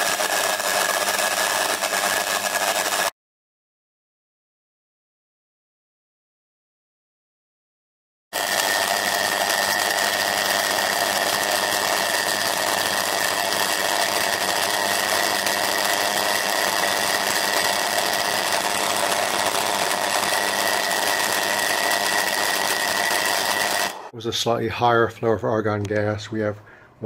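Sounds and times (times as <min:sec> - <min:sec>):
electrical arc buzz with whine: 0:00.0 - 0:03.1, 0:08.4 - 0:24.2.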